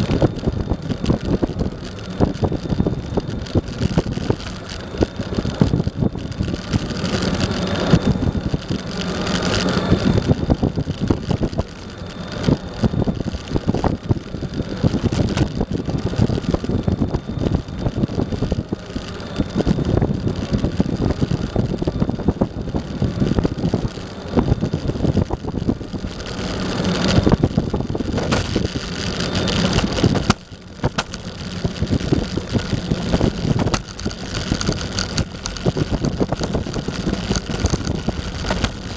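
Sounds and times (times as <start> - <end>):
electric motor whine: 0.0 - 38.9
skateboard wheels rumbling on asphalt: 0.0 - 38.9
wind on microphone: 0.0 - 38.9.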